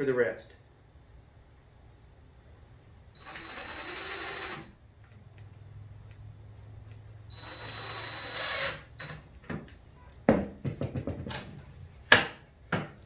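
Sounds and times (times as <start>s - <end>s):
cordless drill motor whir: 3.2s - 4.8s, 7.3s - 9.2s.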